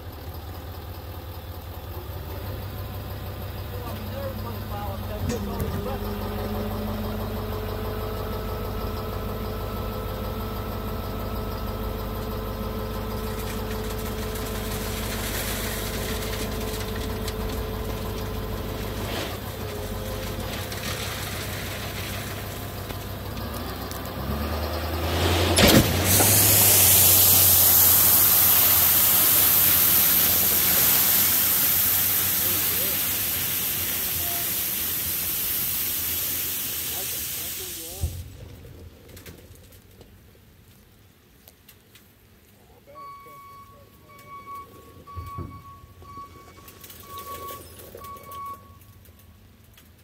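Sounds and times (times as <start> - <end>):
truck engine running: 0.0 - 41.4
crushed stone pouring out: 12.8 - 24.2, 24.9 - 40.0.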